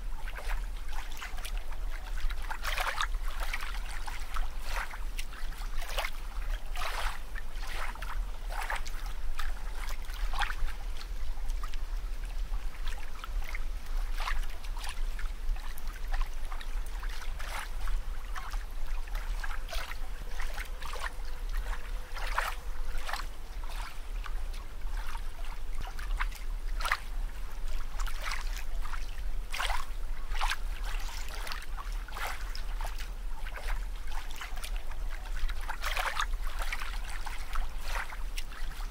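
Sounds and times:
steady low rumble: 0:00.0 - 0:38.9
water splashing and bubbling: 0:00.0 - 0:38.9.

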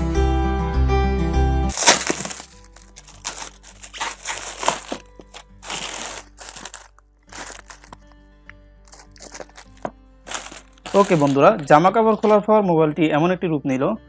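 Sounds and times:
bubble wrap crinkling: 0:01.7 - 0:08.2, 0:08.9 - 0:12.4.

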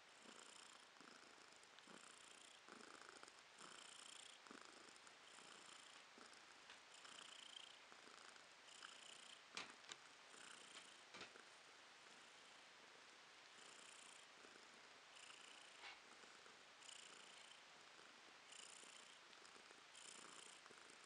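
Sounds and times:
cat purring: 0:00.0 - 0:21.0.

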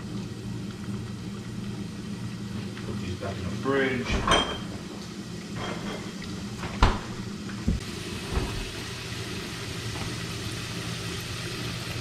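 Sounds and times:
food deep-frying in hot oil: 0:00.0 - 0:12.0
refrigerator door knocks: 0:06.7 - 0:08.6.

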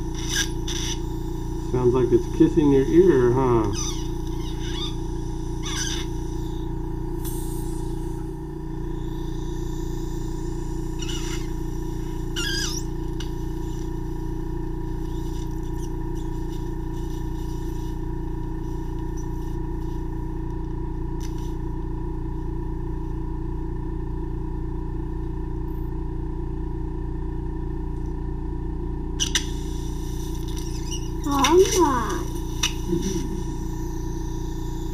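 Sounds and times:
high suction squeaks: 0:00.0 - 0:08.3, 0:09.0 - 0:20.0, 0:29.2 - 0:34.9
suction unit hum and hiss: 0:00.0 - 0:34.9.

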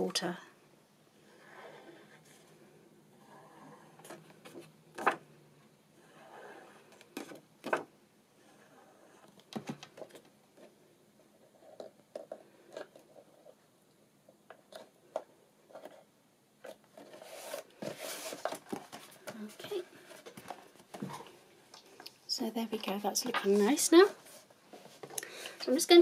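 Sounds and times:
paper rustling: 0:16.6 - 0:21.4, 0:22.8 - 0:25.1.

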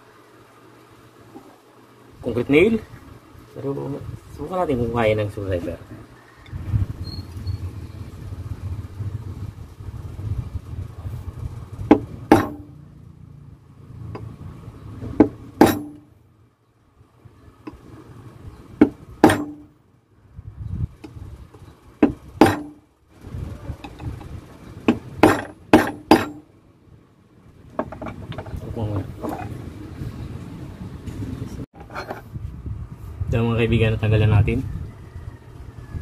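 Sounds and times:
steady low hum: 0:00.0 - 0:36.0
hammer tapping metal punch: 0:11.9 - 0:12.8, 0:15.1 - 0:16.1, 0:18.8 - 0:19.7, 0:22.0 - 0:22.8, 0:24.8 - 0:26.5.

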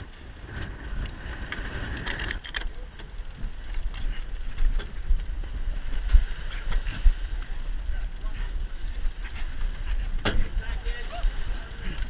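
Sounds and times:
wind and water rushing: 0:00.0 - 0:12.0
winch ratcheting: 0:01.5 - 0:05.2.

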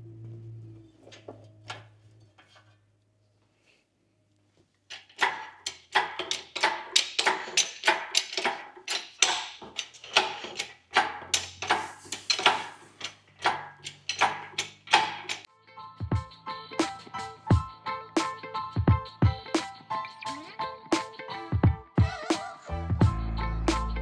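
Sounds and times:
sharp knocks: 0:05.1 - 0:12.8, 0:13.4 - 0:15.5.

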